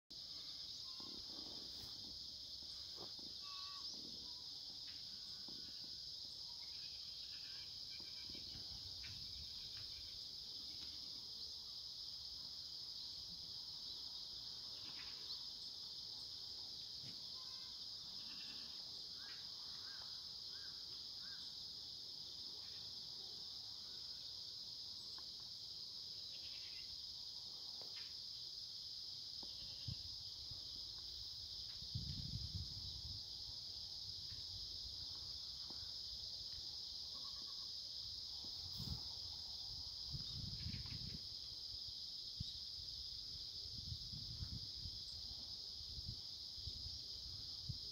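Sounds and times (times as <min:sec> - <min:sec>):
insects trilling: 0:00.1 - 0:47.9
faint chirps: 0:00.2 - 0:11.5.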